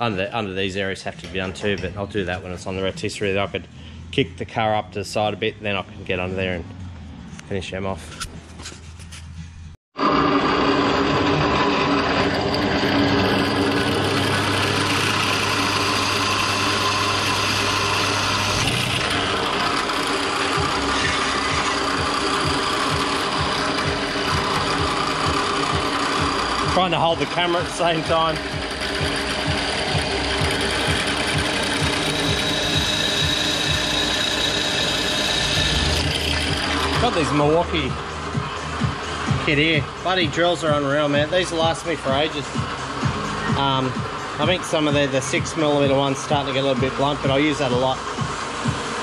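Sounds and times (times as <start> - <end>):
drill press boring into steel: 10.0 - 37.9
motor hum: 10.0 - 49.0.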